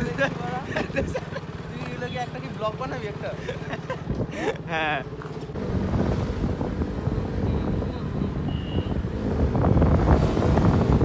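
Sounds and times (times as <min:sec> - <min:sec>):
motorcycle engine: 0:00.0 - 0:11.0
road rumble: 0:00.0 - 0:11.0
wind buffeting microphone: 0:05.6 - 0:11.0.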